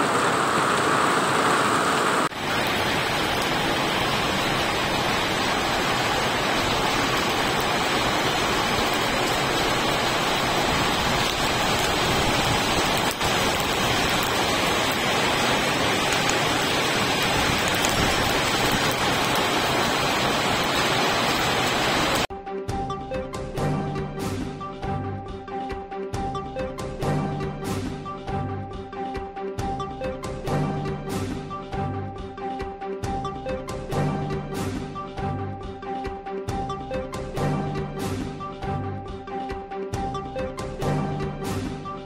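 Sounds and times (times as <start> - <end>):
heavy rain pouring: 0.0 - 22.3.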